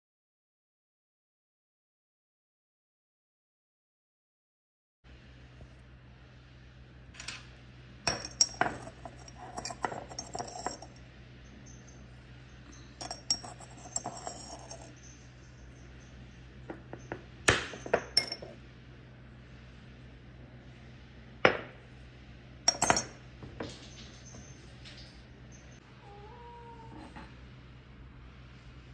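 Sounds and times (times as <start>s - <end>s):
steady low hum: 5.1s - 28.9s
dishes and utensils clinking: 8.1s - 11.0s, 11.7s - 16.0s, 22.7s - 25.8s.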